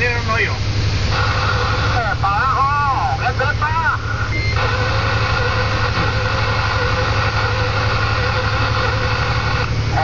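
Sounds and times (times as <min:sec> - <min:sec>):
diesel truck engine running: 0:00.0 - 0:10.0.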